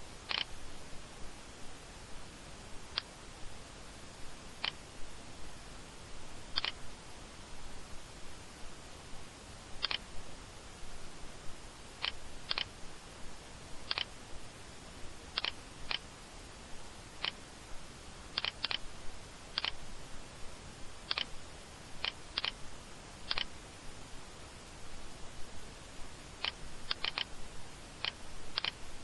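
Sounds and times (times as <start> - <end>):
steady hiss: 0.0 - 29.0
computer mouse clicking: 0.3 - 0.5, 6.5 - 6.8, 9.8 - 10.0, 12.0 - 12.7, 13.9 - 14.1, 15.4 - 16.0, 17.2 - 17.4, 18.4 - 18.8, 19.6 - 19.8, 21.1 - 21.3, 22.0 - 22.6, 23.3 - 23.5, 26.4 - 27.3, 28.0 - 28.8.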